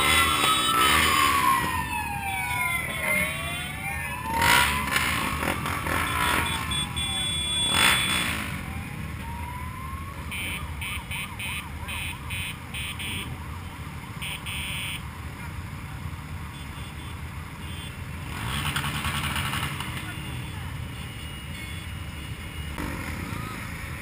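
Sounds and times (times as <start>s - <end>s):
emergency vehicle siren: 0.0s - 15.0s, 22.5s - 24.0s
motorcycle engines idling: 0.0s - 24.0s
high electronic beeps: 4.4s - 8.7s.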